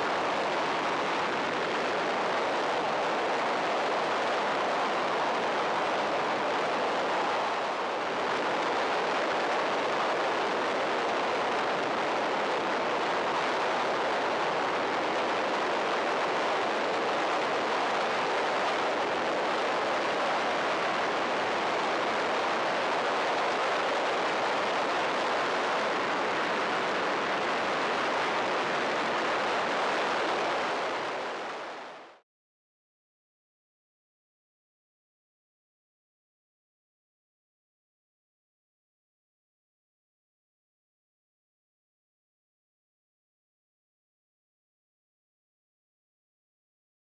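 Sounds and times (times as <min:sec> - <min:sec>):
aircraft wind and engine roar: 0:00.0 - 0:32.1.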